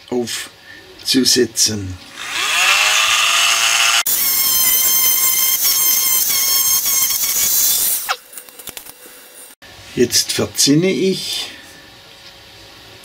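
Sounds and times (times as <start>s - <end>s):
rotary tool whining: 2.0s - 8.7s.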